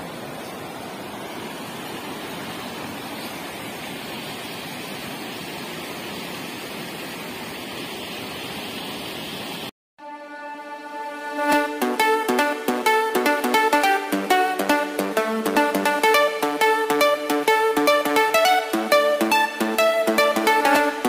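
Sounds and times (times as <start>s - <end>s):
plucked string music: 10.0s - 21.0s.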